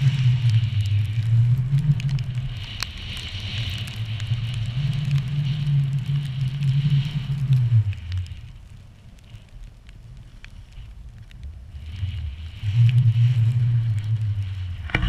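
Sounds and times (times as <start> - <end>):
skis running through snow: 0.0 - 8.0
crackles and clicks: 0.0 - 15.0
wind rumbling on microphone: 0.0 - 15.0.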